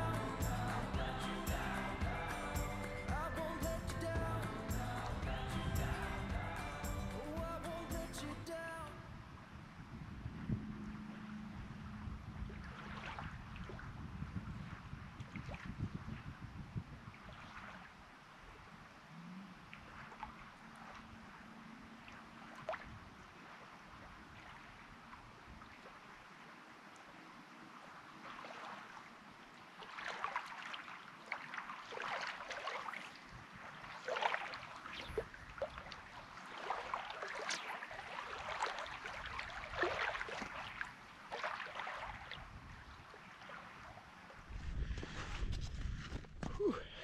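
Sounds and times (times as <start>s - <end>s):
small waves lapping on stones: 22.1s - 44.5s.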